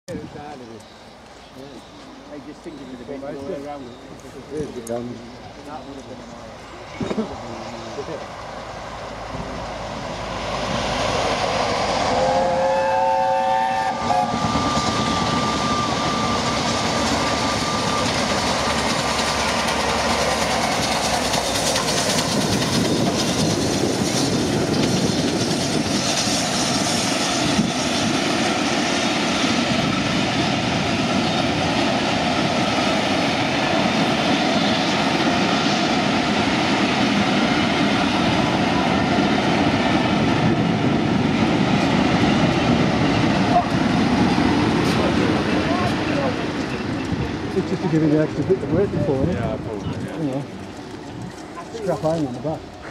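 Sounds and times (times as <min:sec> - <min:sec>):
loud rush of passing train: 0:00.1 - 0:52.9
locomotive whistle: 0:12.1 - 0:18.7
train wheels clattering over joints: 0:16.1 - 0:30.2, 0:42.5 - 0:52.9.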